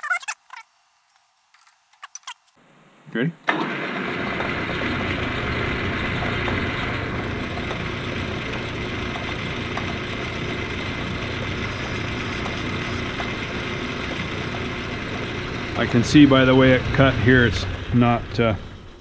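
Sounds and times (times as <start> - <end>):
metal lathe whining: 4.6 - 19.0.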